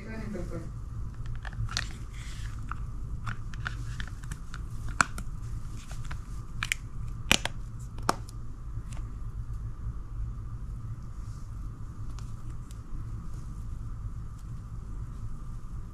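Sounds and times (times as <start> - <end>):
phone case snapping on: 6.6 - 8.2
plastic phone case clicking: 6.6 - 8.2.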